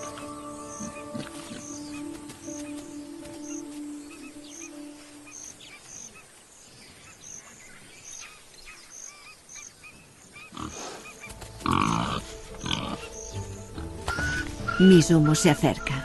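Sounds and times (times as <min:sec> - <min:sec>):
warthogs grunting: 0:10.5 - 0:13.1.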